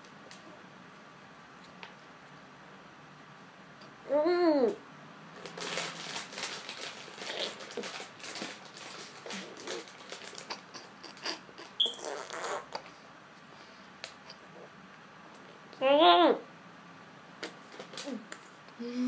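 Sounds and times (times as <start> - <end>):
wet mouth smacking: 10.4 - 12.9.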